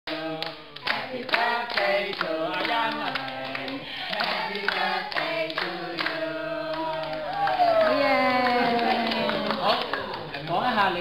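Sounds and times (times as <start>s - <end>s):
group of people singing: 0.1s - 7.6s
hands clapping along: 0.1s - 10.6s.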